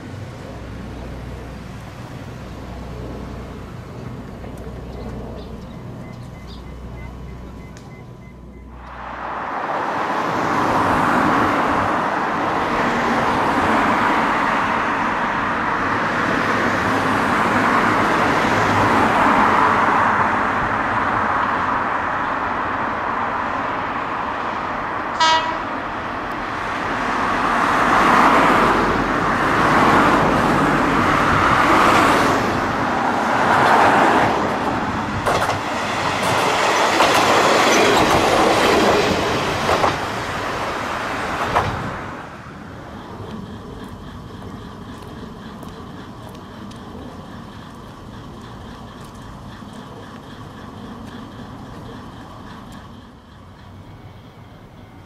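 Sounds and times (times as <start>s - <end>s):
diesel railcar passing: 0.0s - 55.0s
short high train horn: 25.1s - 25.8s.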